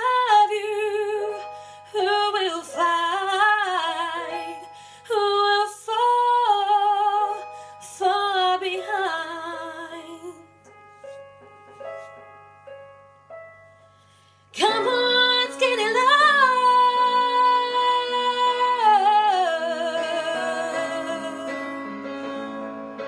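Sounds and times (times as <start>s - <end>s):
woman singing with vibrato: 0.0s - 10.5s, 14.5s - 22.3s
piano notes and chords: 0.0s - 23.0s.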